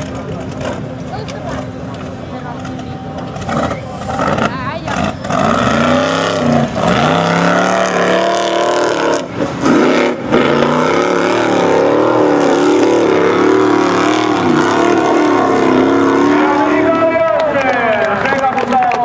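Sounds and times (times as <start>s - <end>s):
buggy engine revving hard: 3.4s - 17.2s.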